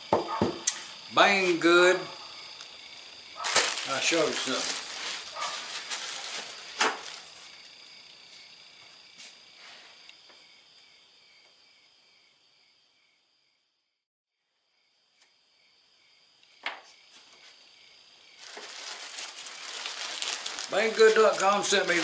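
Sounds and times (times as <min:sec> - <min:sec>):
plastic bag rustling: 0:03.4 - 0:07.5, 0:18.3 - 0:22.0.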